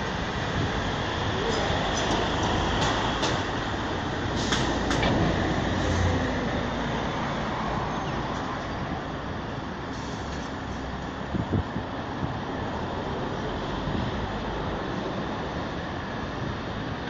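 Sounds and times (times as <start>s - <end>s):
road traffic: 0.0s - 17.0s.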